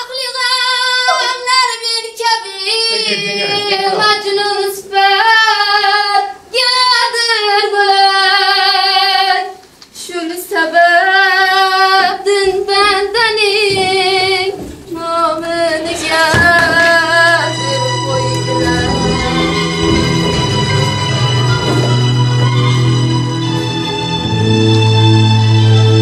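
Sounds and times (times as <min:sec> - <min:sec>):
woman singing: 0:00.0 - 0:20.7.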